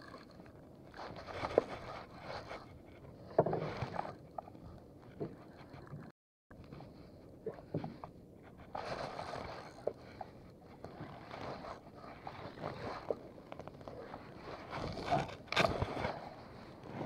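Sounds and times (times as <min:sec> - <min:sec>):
clothing rustling and scraping: 0:06.6 - 0:17.0.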